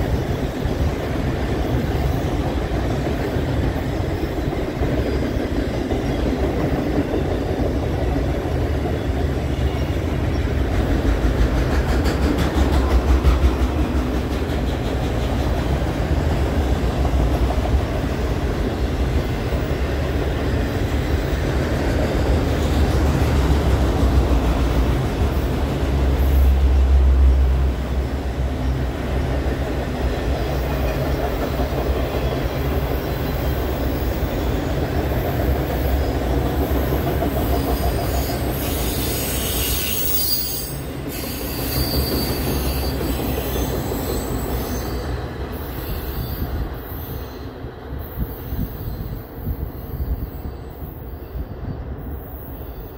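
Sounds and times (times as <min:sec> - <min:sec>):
train wheels rumbling on rails: 0:00.0 - 0:52.9
wheel squeal: 0:37.5 - 0:47.5.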